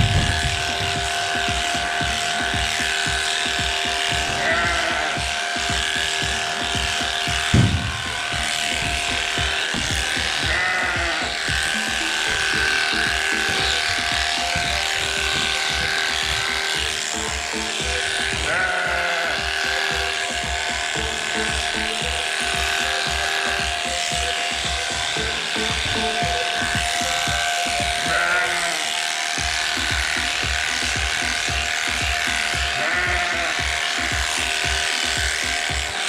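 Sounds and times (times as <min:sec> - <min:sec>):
background music: 0:00.0 - 0:36.0
sheep bleating: 0:00.0 - 0:36.0
sharp thump: 0:07.5 - 0:08.0.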